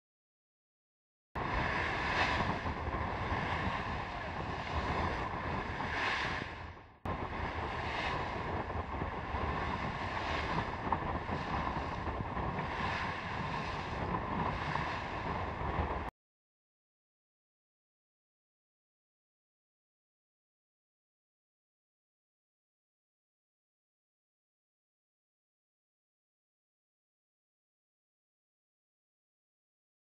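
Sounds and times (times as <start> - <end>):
water rushing along bow: 1.4 - 16.1
wind buffeting microphone: 1.4 - 16.1.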